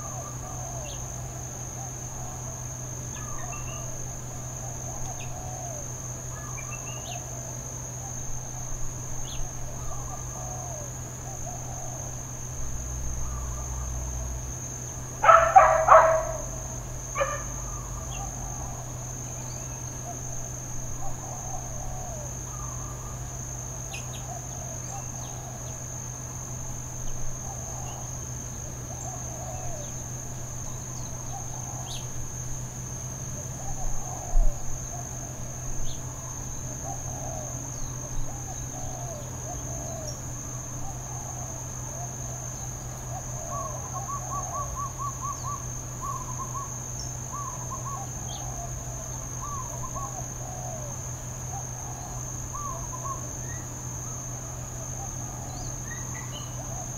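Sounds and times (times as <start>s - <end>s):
insect chorus: 0.0s - 56.9s
distant short calls: 15.2s - 18.7s.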